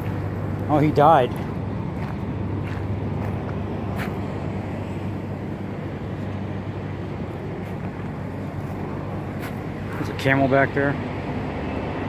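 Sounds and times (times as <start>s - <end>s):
constant low hum: 0.0s - 12.0s
vehicle engines and traffic rumble: 0.0s - 12.0s.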